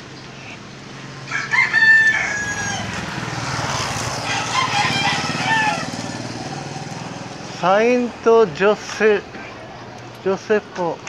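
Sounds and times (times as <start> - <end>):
rooster crowing: 1.2 - 6.6.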